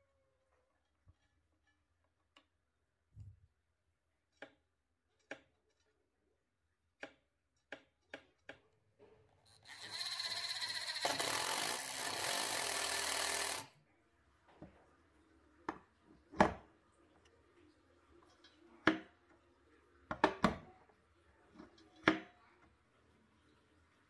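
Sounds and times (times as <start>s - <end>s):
power drill driving screw into wood: 9.6s - 13.7s.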